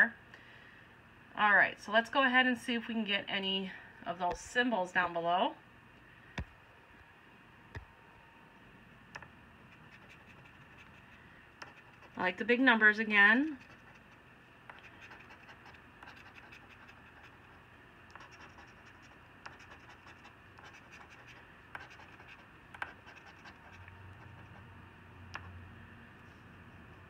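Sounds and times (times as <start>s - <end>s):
coin scratching lottery ticket: 9.8s - 12.4s, 13.4s - 17.5s, 18.1s - 24.6s.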